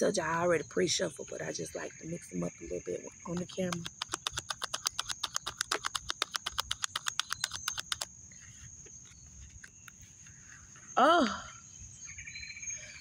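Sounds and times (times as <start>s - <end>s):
cards being shuffled: 3.3s - 10.6s.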